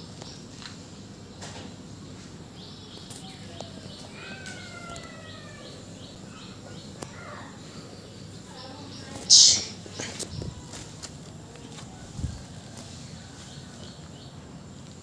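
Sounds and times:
steady background hiss: 0.0 - 15.0
animal chirping: 9.1 - 9.8
falling whistle-like calls: 9.3 - 9.8.

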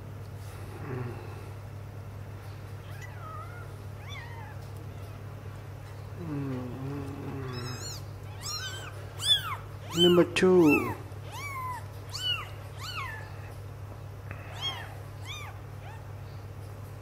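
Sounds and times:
kittens mewing: 2.8 - 5.3, 6.1 - 13.6, 14.2 - 16.5.

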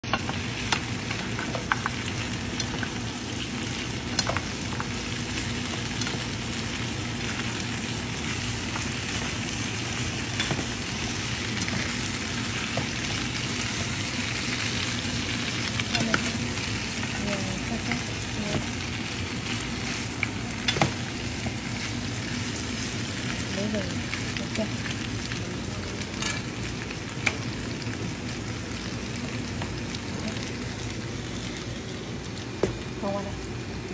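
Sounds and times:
meat sizzling in a pan: 0.0 - 33.9.

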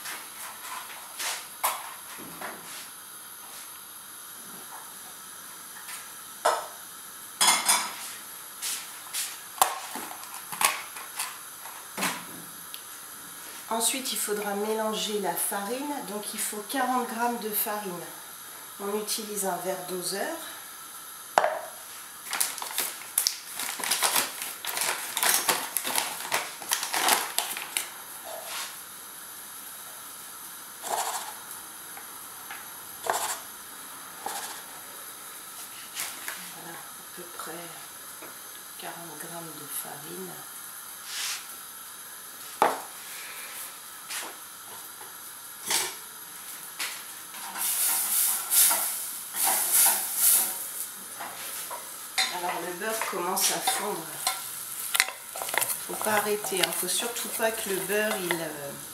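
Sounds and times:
butter sizzling in saucepan: 2.8 - 36.1, 40.5 - 58.9
paper bag rustling and crinkling: 22.2 - 27.9, 54.9 - 58.3.

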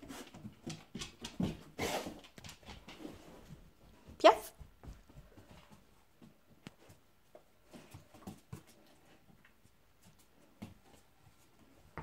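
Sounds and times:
dog claws tapping on floor: 0.1 - 3.2.

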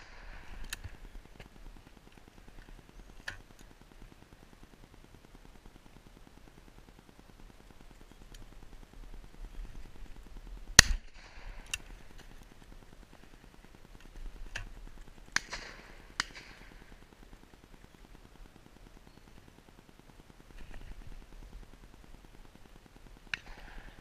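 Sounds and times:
shotgun shots: 10.8 - 11.7, 15.4 - 16.8
fainter distant gunshots: 15.3 - 17.0.

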